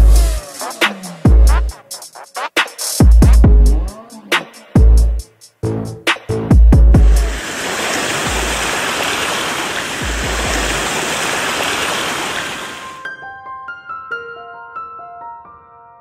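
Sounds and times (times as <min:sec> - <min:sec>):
creek rushing over rocks: 0:07.0 - 0:13.0
piano notes: 0:12.8 - 0:16.0.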